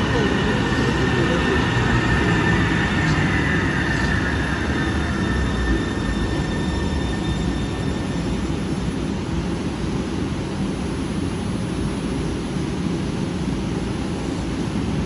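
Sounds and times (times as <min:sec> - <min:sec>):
train wheels rumbling on rail: 0:00.0 - 0:09.2
thin high whine: 0:00.0 - 0:15.0.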